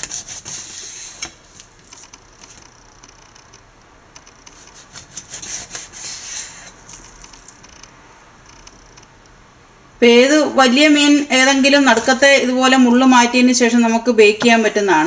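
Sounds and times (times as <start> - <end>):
knife slicing raw fish: 4.5 - 7.0.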